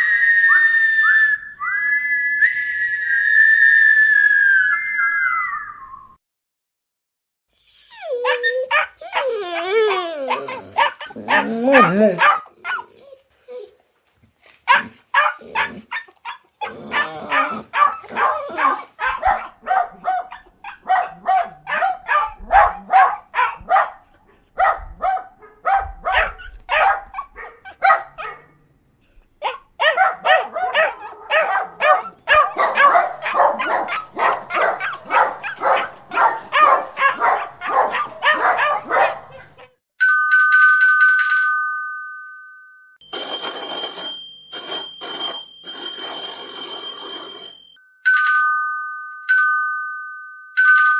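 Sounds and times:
dog barking and yipping: 7.9 - 13.7, 14.6 - 28.6, 29.4 - 39.8.

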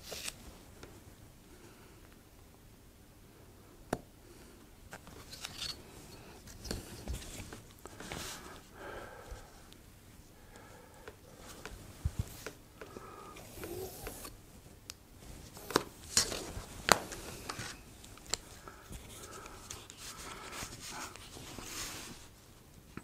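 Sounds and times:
handling sounds: 15.2 - 22.3.

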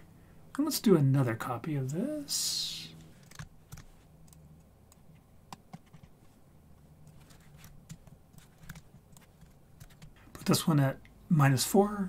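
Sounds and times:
low hum: 0.0 - 12.0
keyboard and mouse clicks: 3.2 - 6.2, 7.0 - 10.2.

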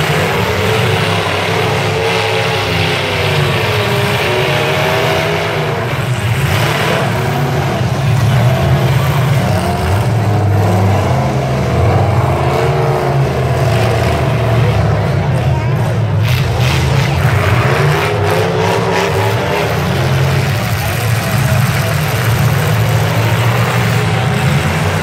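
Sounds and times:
truck engines revving: 0.0 - 25.0.

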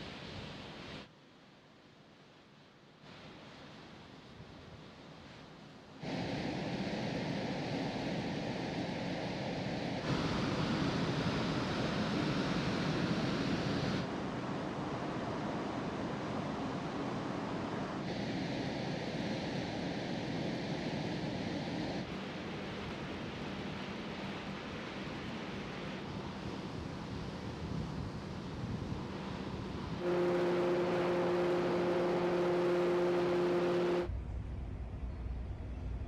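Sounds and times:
sea noise: 6.0 - 34.1
rushing wind: 6.0 - 36.0.

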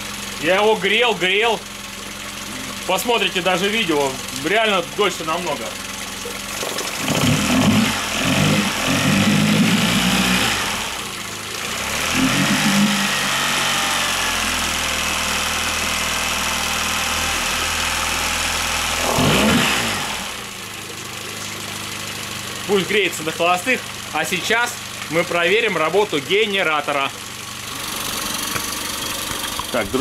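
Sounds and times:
outboard motor revving and idling: 0.0 - 30.0.

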